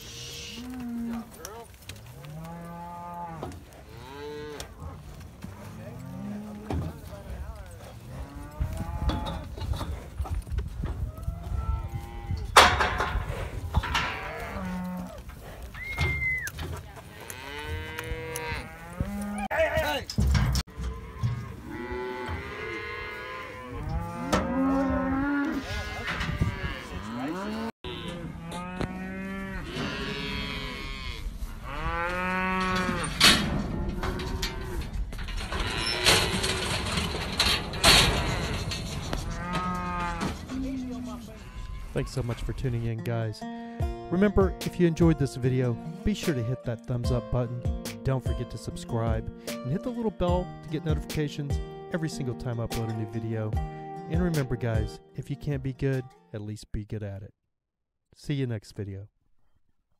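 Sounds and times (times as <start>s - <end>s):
cattle mooing: 0.0s - 6.9s, 7.9s - 9.6s, 13.7s - 16.1s, 17.1s - 19.8s, 20.7s - 37.2s, 37.8s - 42.3s.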